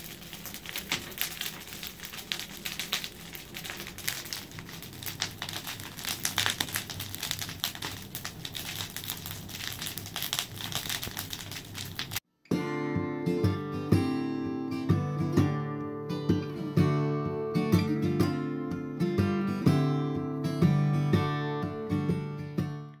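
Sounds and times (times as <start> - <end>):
strummed acoustic guitar: 12.4 - 23.0.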